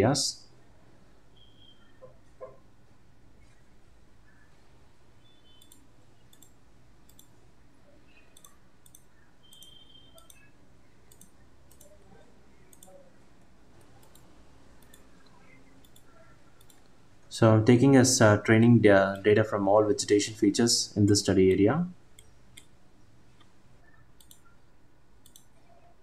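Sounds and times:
faint computer mouse clicks: 5.5 - 7.3, 8.4 - 10.5, 11.1 - 12.0, 12.7 - 13.0, 13.8 - 17.0, 24.2 - 24.5, 25.2 - 25.6.

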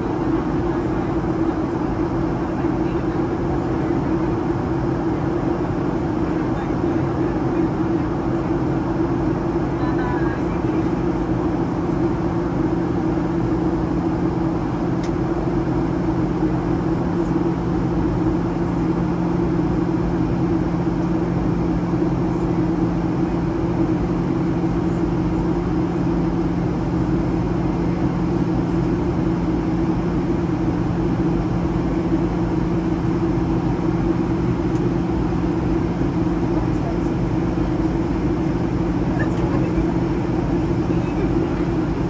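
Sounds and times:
airliner engine hum: 0.0 - 42.0.

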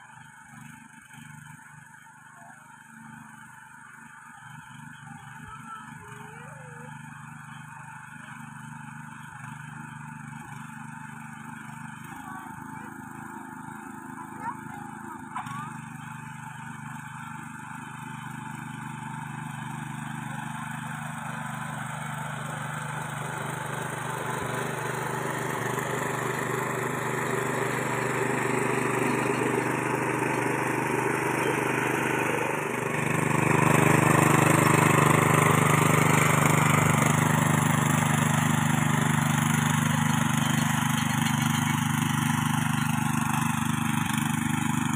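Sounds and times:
small cultivator engine running: 0.0 - 44.9
tines tilling soil: 18.1 - 44.9.

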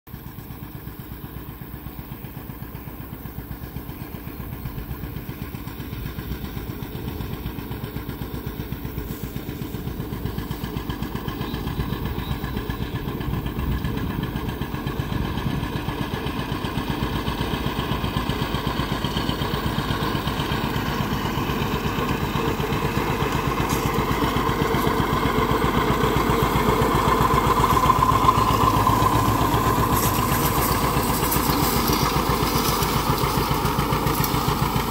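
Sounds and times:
tractor engine running under load: 0.1 - 34.9.

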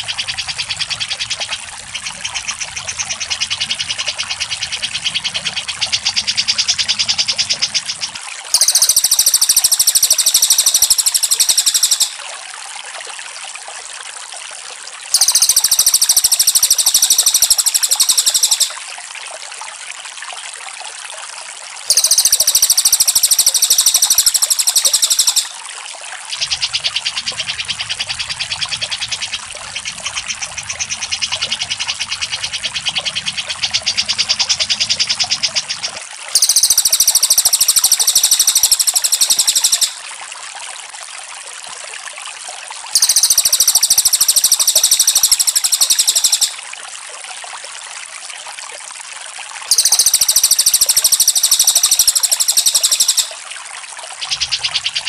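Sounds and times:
fast chattering bird song: 0.0 - 12.2, 15.2 - 18.8, 21.9 - 25.6, 26.4 - 40.0, 43.0 - 46.6, 49.7 - 53.4, 54.2 - 55.0
trickling water: 0.0 - 55.0
high-pitched bird trills: 8.6 - 12.2, 15.2 - 18.8, 21.9 - 25.6, 36.4 - 40.0, 43.0 - 46.6, 49.7 - 53.4, 54.2 - 55.0.

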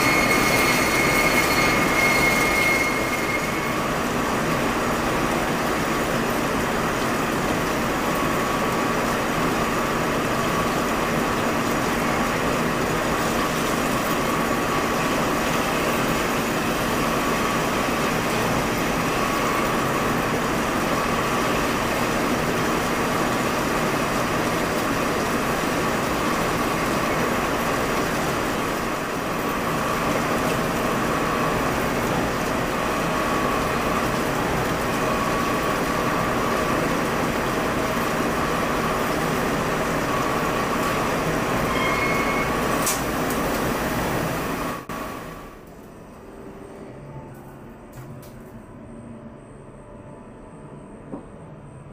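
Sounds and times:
higher machine tone: 0.0 - 5.0, 40.1 - 42.8, 44.9 - 51.9.

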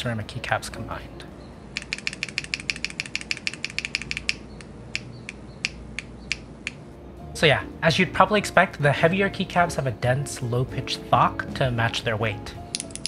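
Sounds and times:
keyboard key clicks: 1.8 - 6.8.

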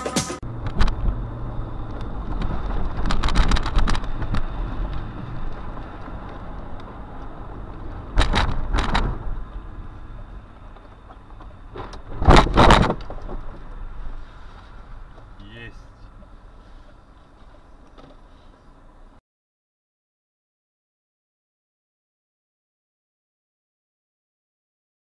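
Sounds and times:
car engine and tyre hum: 0.0 - 19.2.

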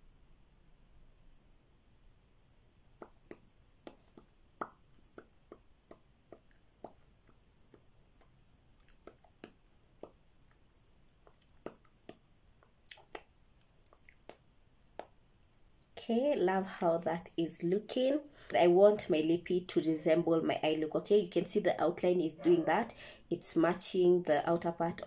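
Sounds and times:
lips smacking: 3.0 - 10.6, 11.2 - 15.2.

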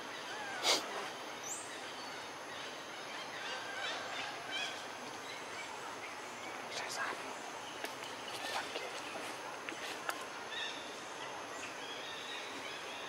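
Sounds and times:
steady hiss: 0.0 - 13.0
short high calls: 0.2 - 1.0.

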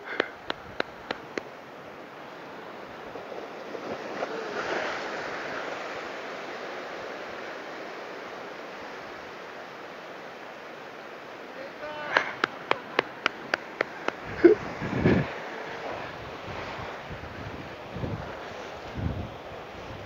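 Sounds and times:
waves breaking on rocks: 0.0 - 20.0
sharp ticks: 0.1 - 1.5, 12.4 - 14.2.

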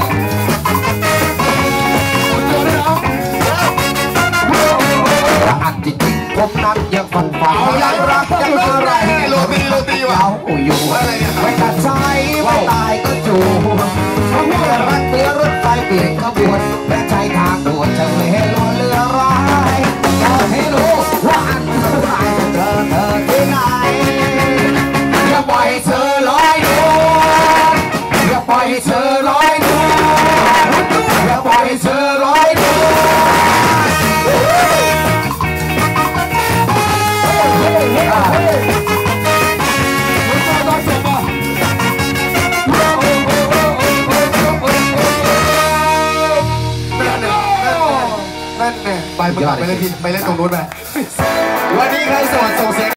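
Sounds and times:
horn section: 0.0 - 5.8, 19.3 - 52.9
live ska band playing: 0.0 - 52.9
lead vocal singing: 1.2 - 35.8, 36.4 - 52.9.

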